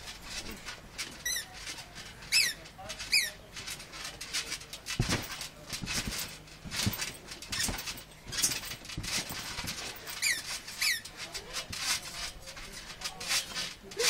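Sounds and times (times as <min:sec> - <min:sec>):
trampoline mat thudding: 0:00.0 - 0:14.0
short high squeaks: 0:01.1 - 0:03.4, 0:05.9 - 0:12.0.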